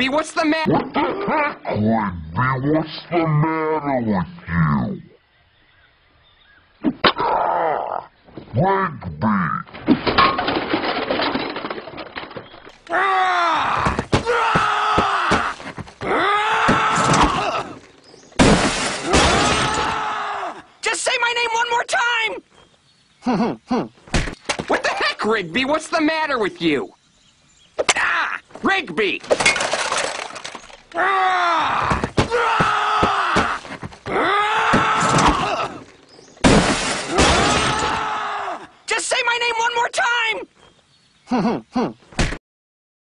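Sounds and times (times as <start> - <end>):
cartoon character groaning and yelling: 0.7 - 4.8, 31.0 - 33.4
thuds: 18.4 - 20.0, 31.8 - 35.7, 36.4 - 38.0
cartoon character screaming: 37.1 - 38.7.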